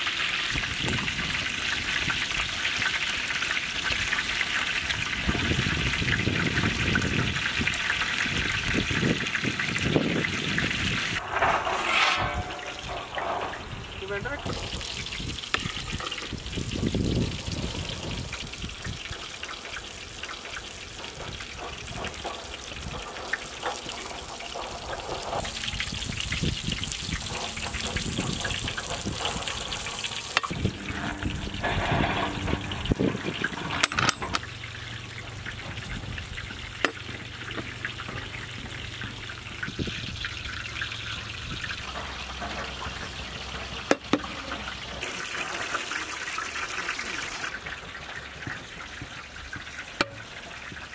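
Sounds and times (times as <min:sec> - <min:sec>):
ladle scraping rice in pot: 0:11.2 - 0:13.7.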